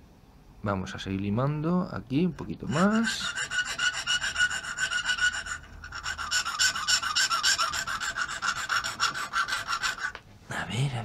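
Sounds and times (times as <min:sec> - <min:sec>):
file rasping: 0:02.5 - 0:10.2.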